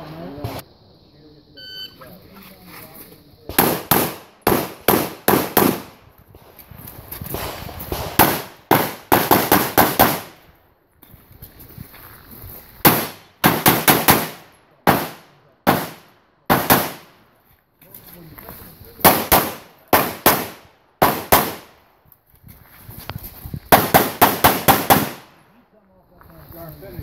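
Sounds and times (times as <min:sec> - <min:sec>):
pistol shots echoing: 0:03.5 - 0:06.0, 0:08.0 - 0:10.3, 0:12.8 - 0:17.1, 0:19.0 - 0:21.7, 0:23.7 - 0:25.3.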